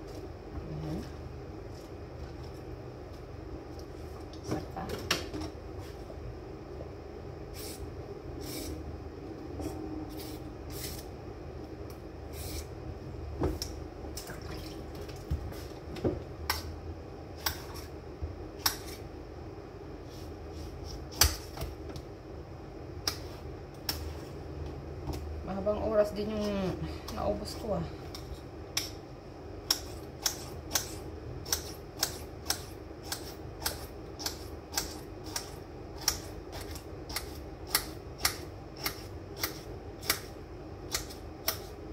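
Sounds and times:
steady background hum: 0.0s - 41.9s
knife cutting cucumber: 29.6s - 41.8s.

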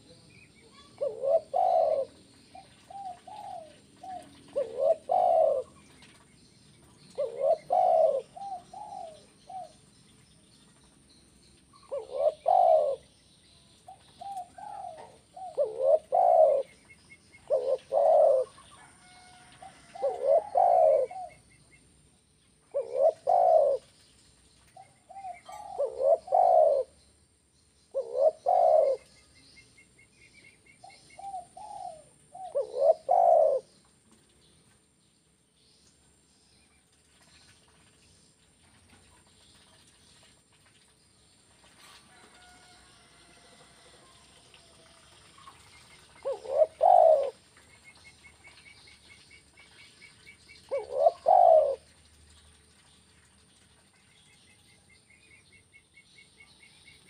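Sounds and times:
dove cooing: 0.7s - 5.9s, 7.0s - 9.8s, 11.8s - 13.1s, 13.9s - 16.8s, 17.4s - 21.4s, 22.7s - 23.9s, 24.8s - 27.0s, 27.9s - 29.1s, 30.8s - 33.7s, 46.2s - 47.4s, 50.6s - 51.9s.

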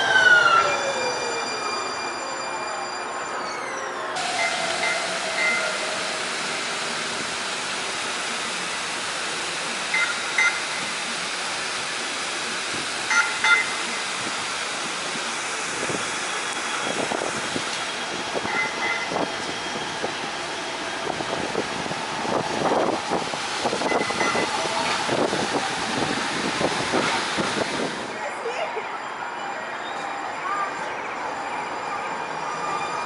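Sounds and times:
streetcar passing: 0.0s - 33.0s
street traffic noise: 2.2s - 33.0s.

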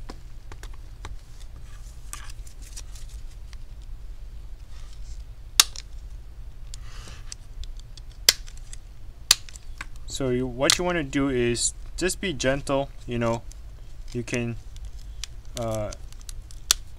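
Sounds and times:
steady low hum: 0.0s - 16.9s
sharp plastic clicks: 7.6s - 10.0s.

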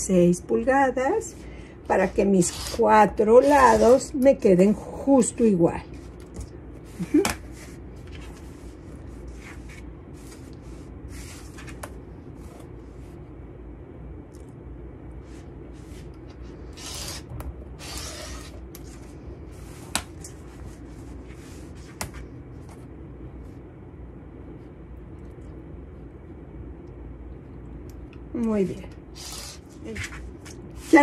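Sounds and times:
low hum: 0.0s - 31.0s
rotary cutter slicing fabric: 2.0s - 4.2s, 16.7s - 18.7s, 29.2s - 29.8s.

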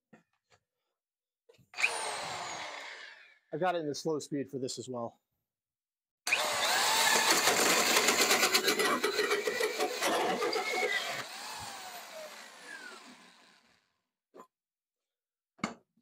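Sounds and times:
drill with hole saw cutting wood: 1.7s - 3.4s, 6.3s - 13.9s.

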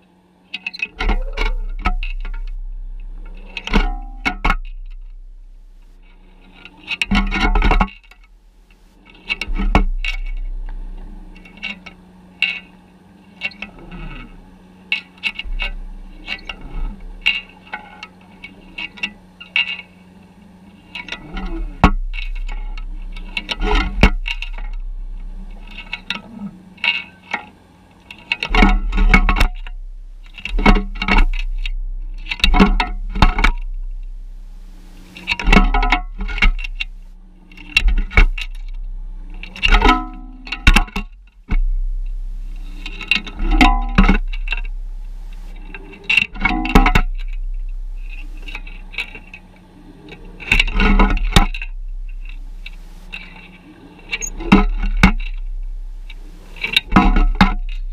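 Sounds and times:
low underwater hum: 0.0s - 57.9s
underwater knocks and clicks: 7.0s - 8.3s, 28.4s - 33.9s, 35.2s - 37.0s, 37.6s - 38.8s, 39.4s - 47.4s, 50.1s - 53.3s, 54.1s - 55.5s.

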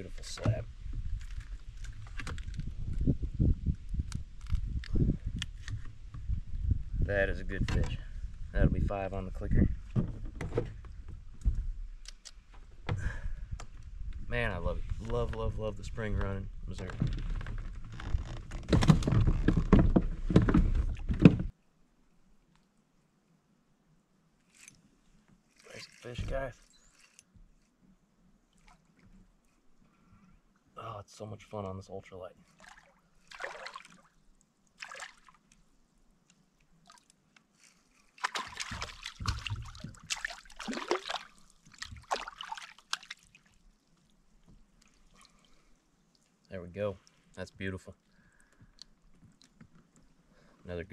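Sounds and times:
fish thrashing and water sloshing: 28.5s - 29.6s, 32.4s - 35.7s, 36.6s - 47.4s, 48.0s - 50.3s
fish splashing at surface: 38.2s - 43.6s.

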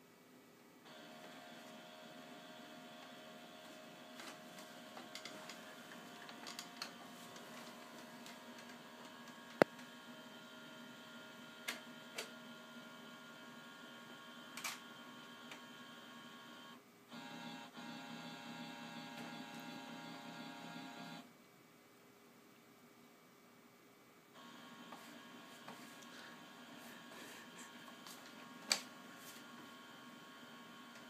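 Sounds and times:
scanner motor whining: 8.8s - 21.2s.

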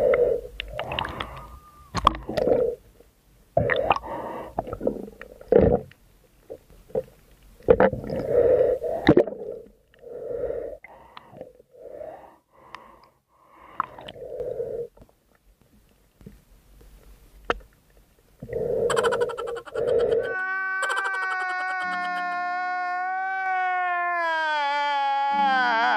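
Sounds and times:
muffled underwater breathing: 0.0s - 2.8s, 8.0s - 15.0s, 18.4s - 20.3s.

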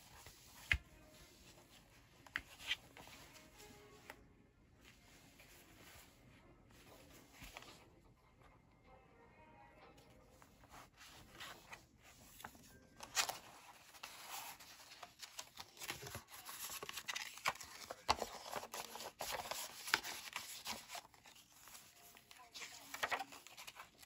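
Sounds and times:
paper pages rustling: 0.0s - 4.2s, 6.8s - 7.9s, 10.4s - 24.0s.

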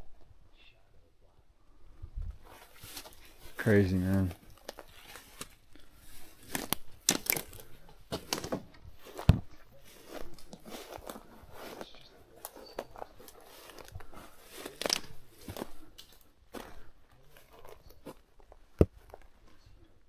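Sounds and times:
footsteps through dry brush: 2.4s - 19.6s
twig cracking: 4.5s - 8.6s, 14.5s - 16.2s.

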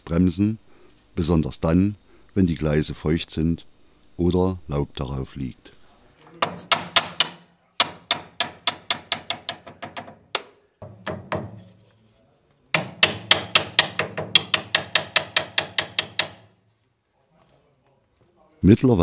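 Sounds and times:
steel rod tapping metal pipe: 6.4s - 11.5s, 12.8s - 16.5s.

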